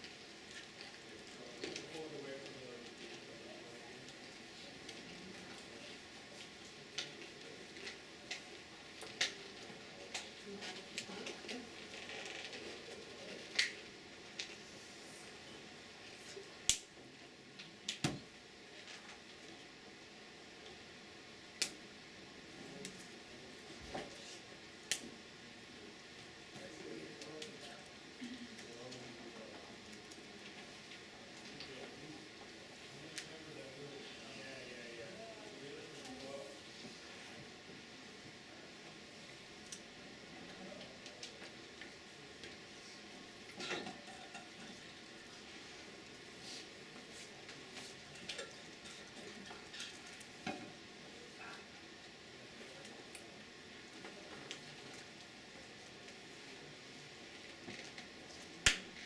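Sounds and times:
faint hum: 0.0 - 59.0
faint room hiss: 0.0 - 59.0.

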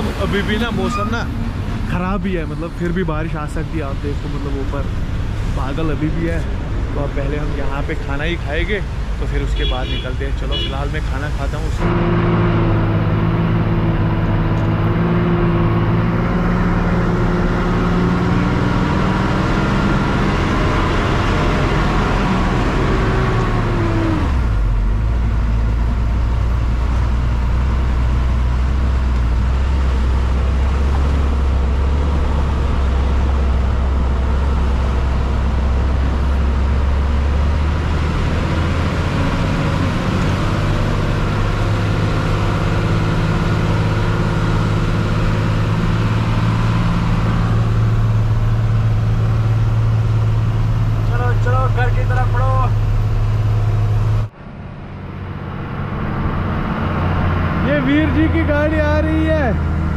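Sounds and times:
diesel truck engine: 0.0 - 59.9.

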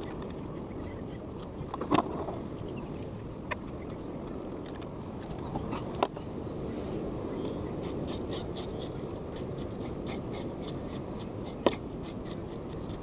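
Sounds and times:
knife scraping fish: 7.8 - 13.0.

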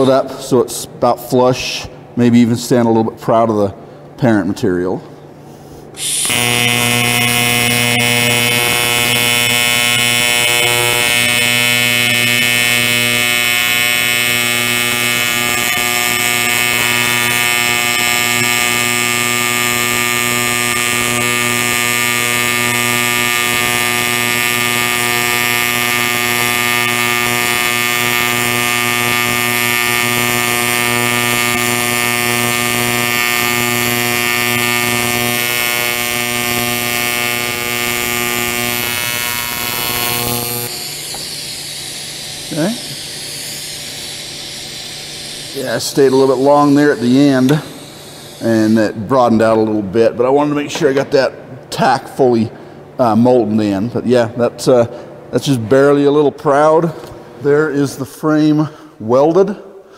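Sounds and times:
welding arc buzzing: 5.5 - 52.3.

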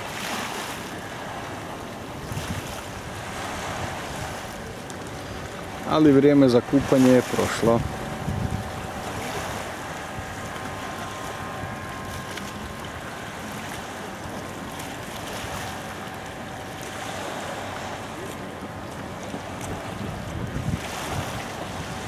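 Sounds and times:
water lapping at shore: 0.0 - 22.0
wind on microphone: 2.0 - 22.0
faint steady tone: 2.9 - 20.4.

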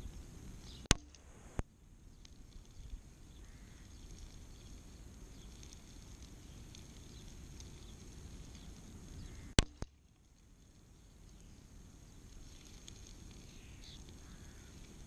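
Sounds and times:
low outdoor background: 0.0 - 15.0
sharp knock: 9.6 - 9.9.

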